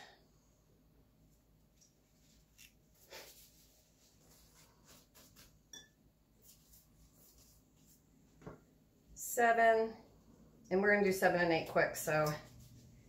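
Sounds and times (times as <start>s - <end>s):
soft rustles: 2.0s - 5.6s, 6.4s - 8.6s.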